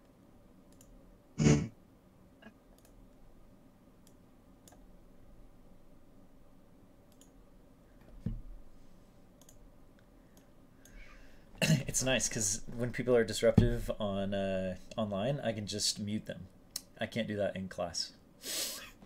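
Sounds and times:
soft thud: 13.6s - 13.9s.

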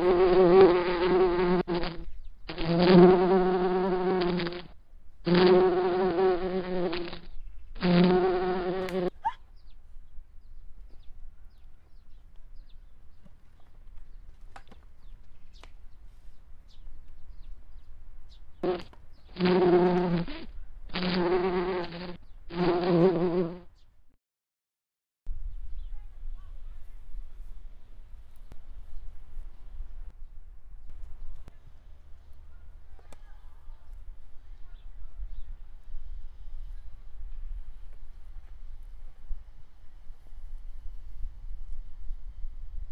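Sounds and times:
insect buzzing: 0.0s - 9.1s, 18.6s - 23.7s.

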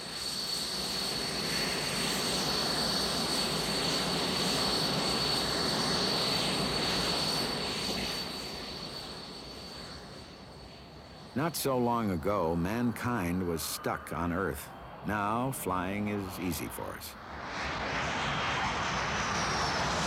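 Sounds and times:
jet turbine whine: 0.0s - 20.0s
rushing noise: 10.9s - 20.0s.

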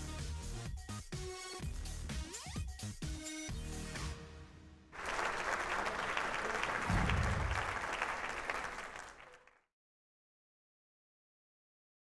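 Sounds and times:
crowd applause: 5.0s - 9.6s.

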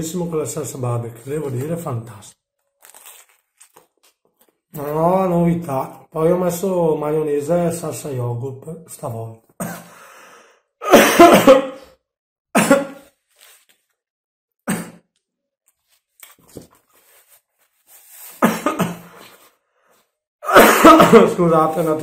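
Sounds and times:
man coughing: 10.8s - 11.9s, 12.6s - 13.0s, 14.7s - 15.0s, 18.4s - 19.1s, 20.4s - 21.4s.

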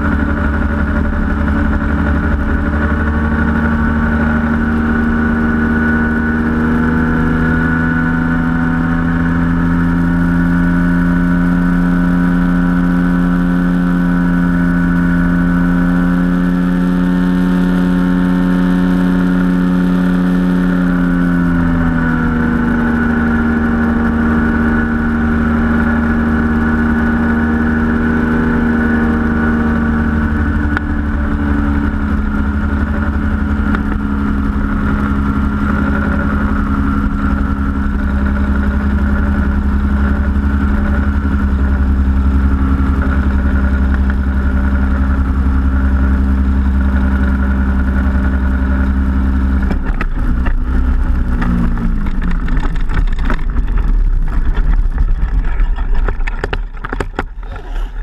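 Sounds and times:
engine and propeller running: 0.0s - 58.0s
cart rattling over rough grass: 49.4s - 58.0s.

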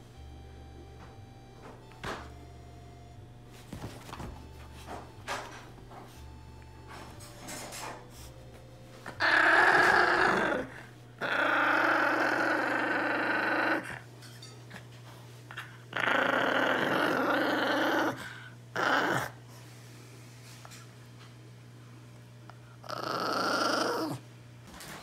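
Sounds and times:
small dog growling: 9.1s - 14.1s, 15.5s - 19.4s, 22.8s - 24.2s.

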